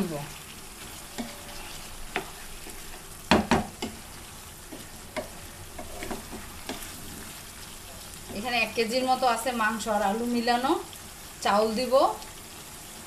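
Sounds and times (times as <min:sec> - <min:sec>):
chicken and potato sizzling in a pot: 0:00.0 - 0:13.0.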